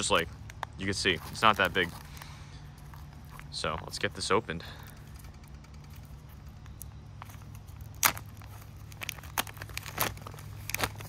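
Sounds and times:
plastic crinkling: 0:05.5 - 0:11.0
plastic pouch ripping: 0:06.7 - 0:11.0.

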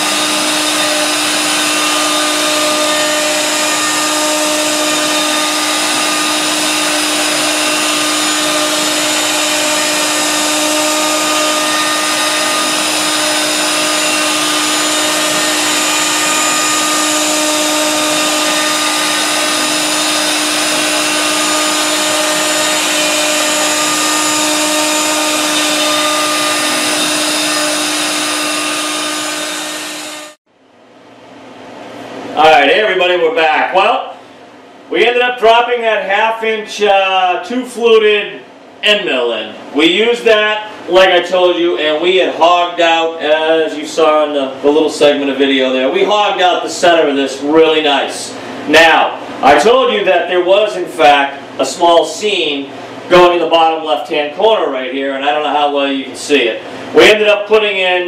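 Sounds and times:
router spindle whine cutting wood: 0:00.0 - 0:30.4.

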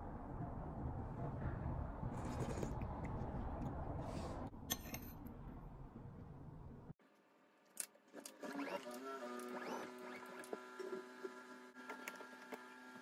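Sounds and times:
low steady background rumble: 0:00.0 - 0:07.0.

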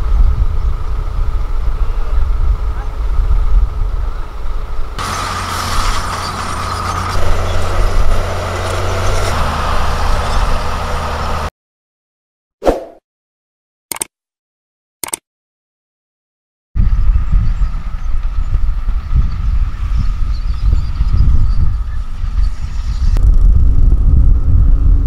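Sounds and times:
dump trucks rumbling: 0:00.7 - 0:11.5
bulldozer engine whining: 0:02.9 - 0:11.5
brief clicks: 0:13.9 - 0:14.1, 0:15.0 - 0:15.2.

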